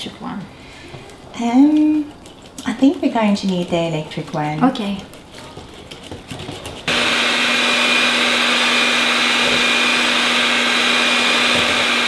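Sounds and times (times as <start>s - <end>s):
electric hand mixer running: 6.9s - 12.0s.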